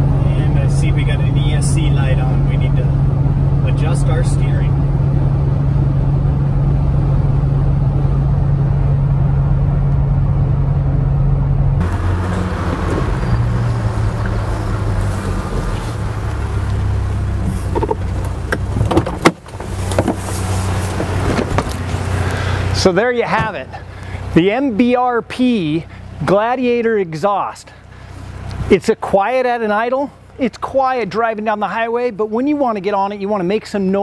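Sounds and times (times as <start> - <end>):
truck idling low: 0.0 - 18.8, 19.4 - 28.8
engine drone inside cab: 0.0 - 34.0
car door clicks and knock: 17.7 - 20.2, 21.0 - 21.8.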